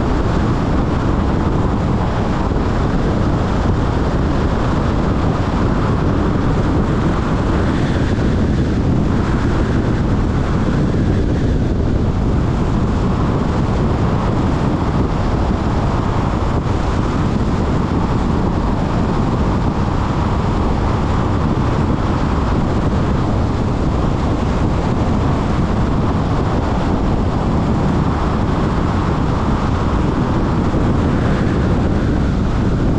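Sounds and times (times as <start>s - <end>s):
tyre and wind noise: 0.0s - 32.9s.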